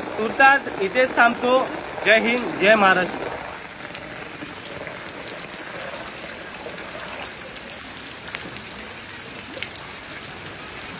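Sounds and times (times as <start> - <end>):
rain on standing water: 0.0 - 10.9.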